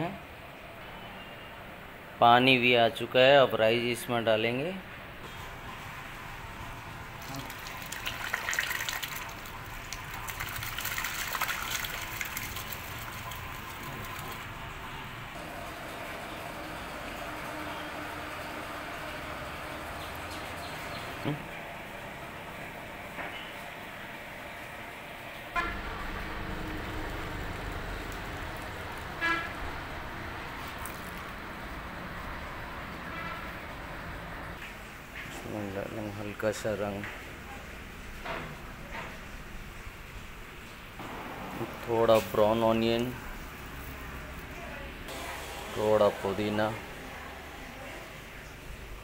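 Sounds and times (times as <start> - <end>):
water bubbling at a boil: 7.0 - 14.8
rice and water splashing into pot: 7.2 - 14.5
short horn toot: 25.6 - 25.9.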